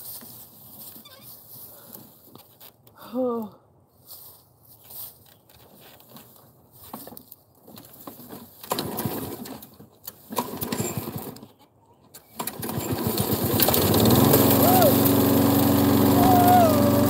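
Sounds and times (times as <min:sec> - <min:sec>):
lawn mower engine running: 0:10.3 - 0:11.4, 0:12.4 - 0:17.0
recoil starter cranking: 0:12.4 - 0:17.0.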